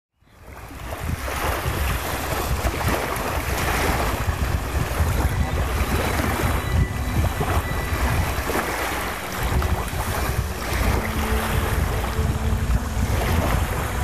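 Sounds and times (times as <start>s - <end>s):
surf washing on beach: 0.3s - 14.0s
wind buffeting microphone: 0.3s - 14.0s.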